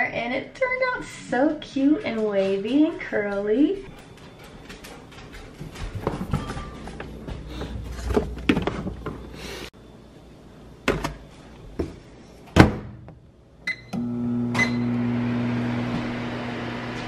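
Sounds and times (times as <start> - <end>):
microwave oven humming: 13.6 - 17.0.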